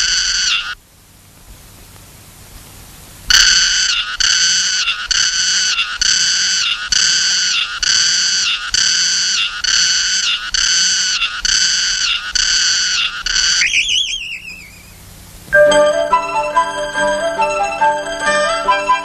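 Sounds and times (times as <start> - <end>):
cicada call: 0.0 - 0.8, 3.2 - 19.0
wavering falling trill: 12.8 - 19.0.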